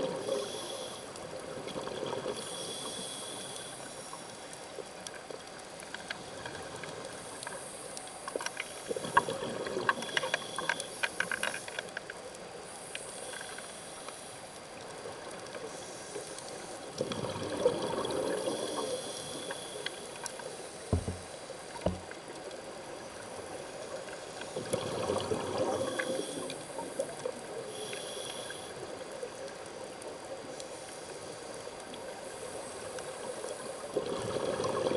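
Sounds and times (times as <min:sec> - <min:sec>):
regulator hiss: 0:00.2 - 0:01.3, 0:02.4 - 0:04.5, 0:12.6 - 0:14.6, 0:18.4 - 0:22.2, 0:25.8 - 0:29.4
exhaled bubbles underwater: 0:01.4 - 0:02.6, 0:08.9 - 0:10.1, 0:16.9 - 0:19.5, 0:24.5 - 0:27.6, 0:33.8 - 0:34.9
dull knocks: 0:20.9 - 0:22.1.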